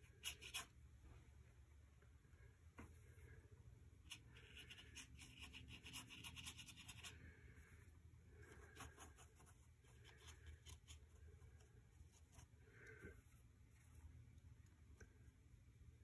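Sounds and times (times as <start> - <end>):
paintbrush scratching on paper: 0.0 - 0.8, 4.1 - 7.7, 8.3 - 14.2
steady low hum: 0.0 - 16.0.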